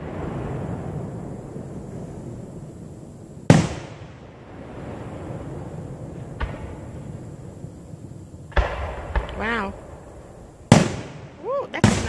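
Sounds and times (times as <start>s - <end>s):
firework shell bursting: 8.5s - 12.0s.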